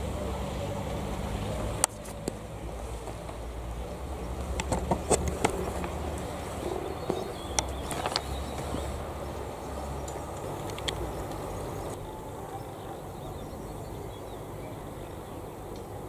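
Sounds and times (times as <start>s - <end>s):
low outdoor rumble: 0.0s - 16.0s.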